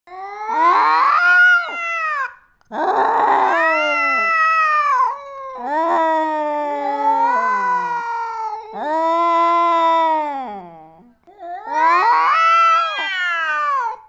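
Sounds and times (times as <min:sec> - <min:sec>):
cat yowling: 0:00.4 - 0:08.9, 0:11.6 - 0:14.0.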